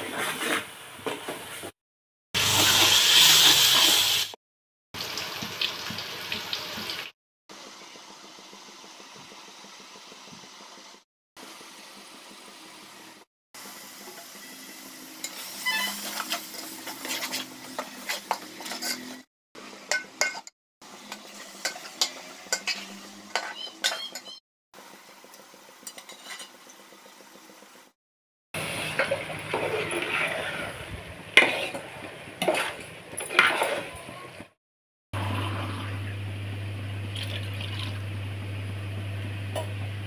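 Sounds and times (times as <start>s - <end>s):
masala sizzling in a pot: 2.4s - 4.4s, 5.0s - 27.9s, 28.6s - 34.4s
metal ladle clinking and scraping: 15.2s - 19.2s, 19.9s - 20.5s, 21.6s - 24.3s, 28.9s - 30.7s, 31.3s - 34.1s.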